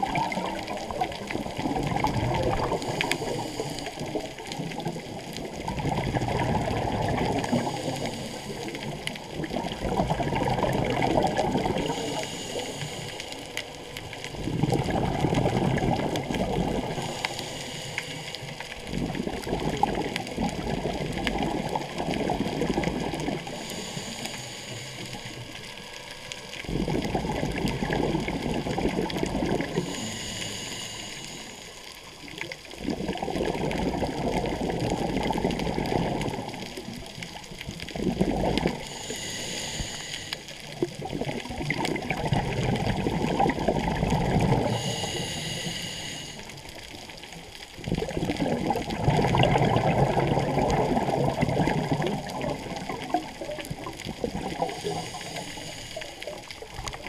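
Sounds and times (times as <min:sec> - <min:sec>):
exhaled bubbles gurgling underwater: 0:00.0 - 0:57.0
regulator inhalation hiss: 0:02.8 - 0:04.2, 0:07.6 - 0:08.7, 0:11.8 - 0:13.5, 0:16.9 - 0:18.6, 0:23.5 - 0:25.4, 0:29.8 - 0:31.9, 0:38.8 - 0:40.6, 0:44.6 - 0:46.7, 0:54.6 - 0:56.5.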